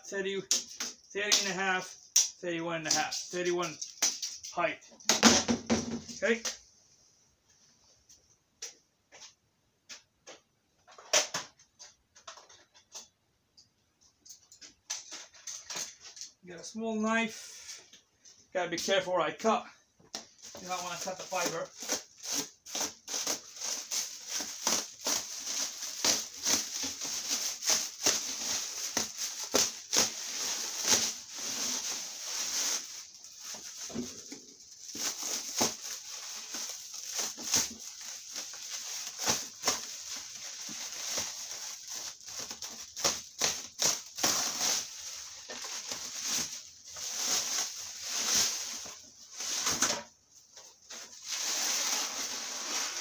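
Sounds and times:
plastic wrap crinkling: 20.4 - 53.0
knife cutting plastic wrap: 20.6 - 32.9, 34.9 - 49.0.

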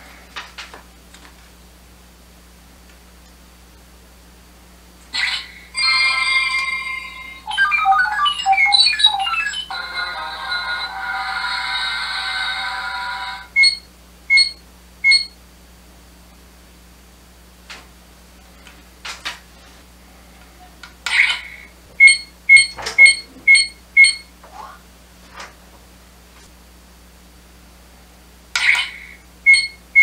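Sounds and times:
electronic beeps: 6.5 - 9.8, 13.5 - 15.4, 22.0 - 24.3, 28.7 - 30.0.

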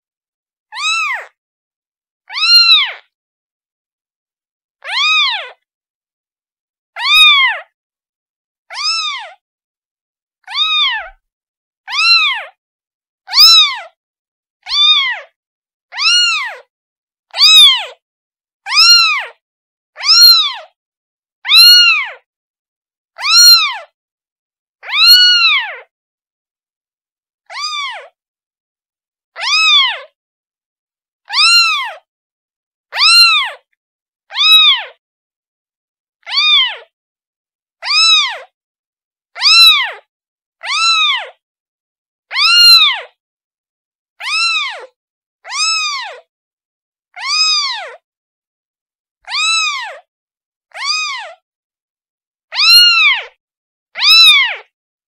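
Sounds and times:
kitten meowing: 0.7 - 1.4, 2.3 - 3.0, 4.8 - 5.6, 7.0 - 7.7, 8.7 - 9.4, 10.4 - 11.2, 11.9 - 12.6, 13.3 - 14.0, 14.7 - 15.3, 15.9 - 16.7, 17.4 - 18.0, 18.7 - 19.4, 20.0 - 20.8, 21.5 - 22.2, 23.2 - 23.9, 24.8 - 25.9, 27.5 - 28.2, 29.4 - 30.2, 31.3 - 32.1, 32.9 - 33.7, 34.3 - 35.0, 36.2 - 36.9, 37.8 - 38.5, 39.4 - 41.4, 42.3 - 43.2, 44.2 - 46.3, 47.1 - 48.0, 49.2 - 50.1, 50.7 - 51.4, 52.5 - 53.4, 54.0 - 54.7.

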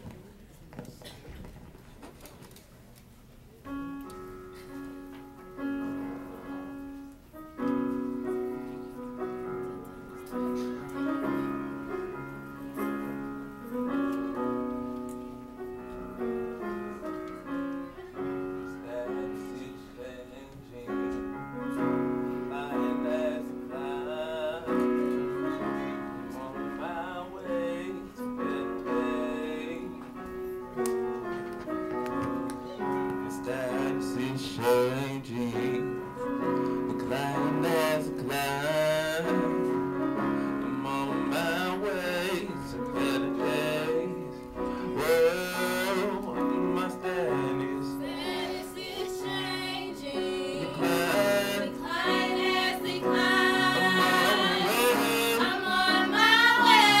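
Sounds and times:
piano playing slow chords: 3.7 - 57.0
women's choir singing: 45.0 - 57.0.

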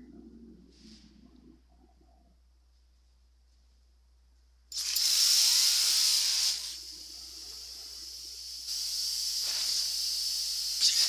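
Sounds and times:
harsh loud hissing: 4.7 - 11.0.

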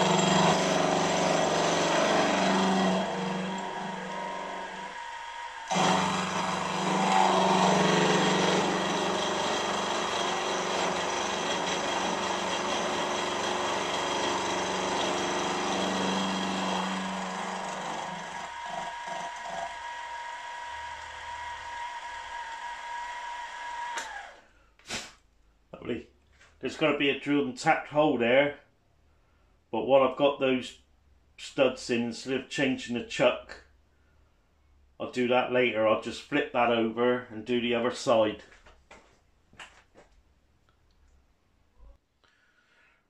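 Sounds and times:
end mill cutting metal: 0.0 - 24.3.

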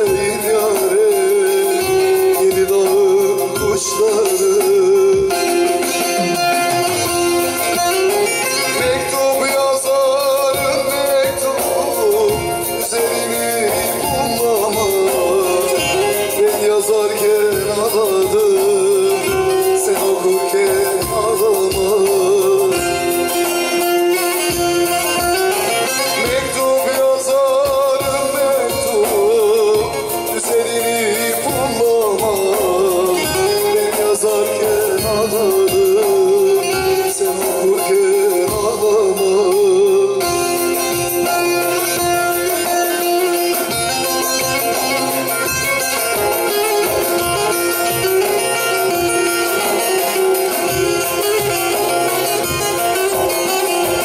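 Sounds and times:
man singing folk song: 0.0 - 44.0
long-necked lute playing: 5.2 - 27.2, 40.2 - 54.0.

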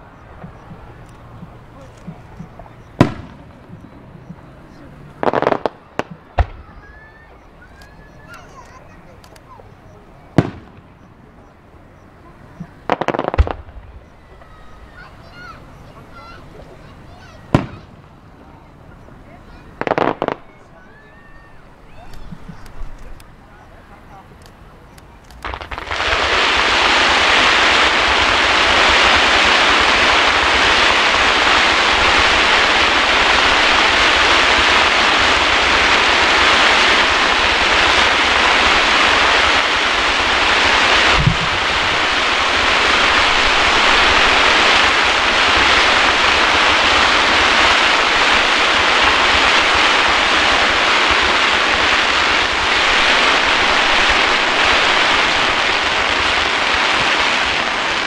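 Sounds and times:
fireworks barrage hissing: 0.0 - 58.0
sharp firework bang: 3.0 - 3.8, 5.2 - 7.2, 10.4 - 11.0, 12.6 - 16.4, 17.1 - 18.1, 25.4 - 58.0.

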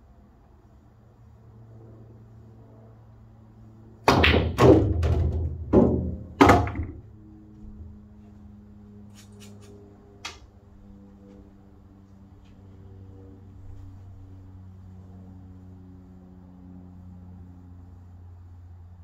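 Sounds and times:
cue striking ball: 4.1 - 7.1
pool balls knocking: 4.1 - 7.1.

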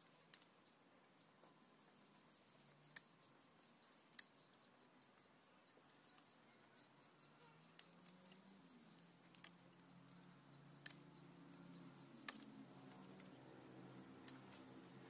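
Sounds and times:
faint wire clicks: 0.0 - 0.7, 2.5 - 5.3, 6.0 - 15.0
faint high chirping: 0.0 - 15.0.

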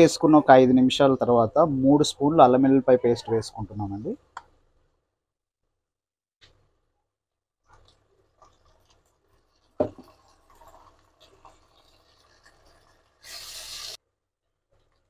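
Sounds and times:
food frying in oil: 7.7 - 14.0.

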